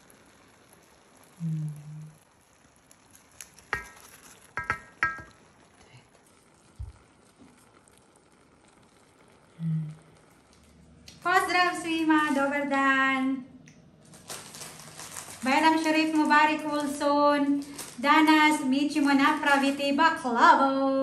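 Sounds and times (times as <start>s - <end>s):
faint steady hiss: 0.0s - 21.0s
metal spoon clinking on tray: 4.6s - 5.3s.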